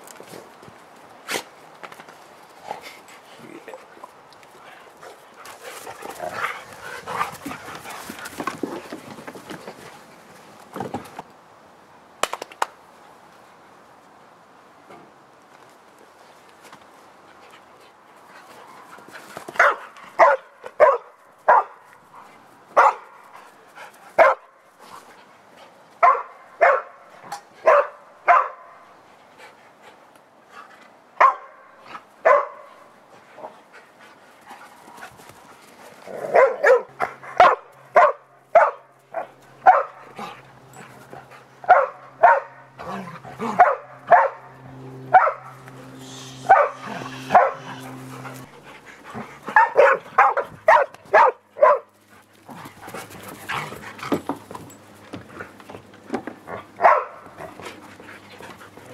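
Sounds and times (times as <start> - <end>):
dogs barking: 19.6 - 21.8, 22.8 - 23.2, 24.2 - 24.5, 26.0 - 27.0, 27.6 - 28.8, 31.2 - 31.6, 32.2 - 32.7, 36.2 - 40.2, 41.6 - 48.5, 49.4 - 51.9, 56.5 - 57.5.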